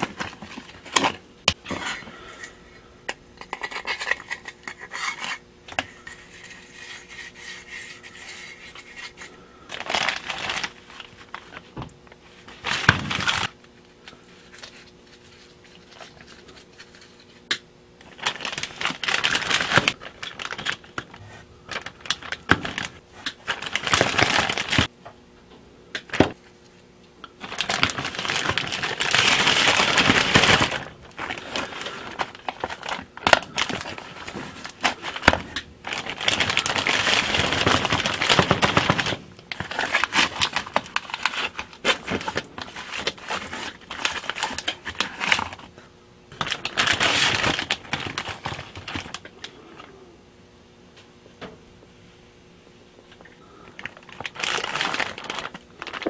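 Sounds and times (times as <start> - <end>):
plastic bag crinkling: 0.0 - 2.4, 7.8 - 17.4, 18.0 - 24.9, 27.4 - 45.7, 46.3 - 49.9, 53.5 - 56.0.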